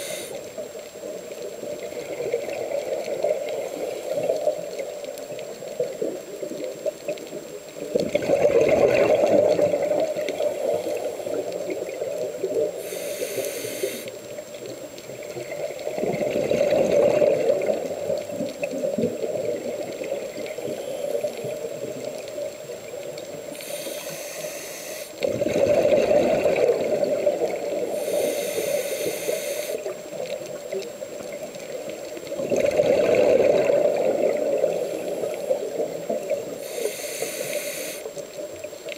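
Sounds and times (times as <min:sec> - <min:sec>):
regulator hiss: 0:00.0 - 0:00.8, 0:10.4 - 0:11.7, 0:12.4 - 0:14.4, 0:23.4 - 0:25.2, 0:27.7 - 0:30.0, 0:34.6 - 0:38.4
exhaled bubbles underwater: 0:00.0 - 0:38.9.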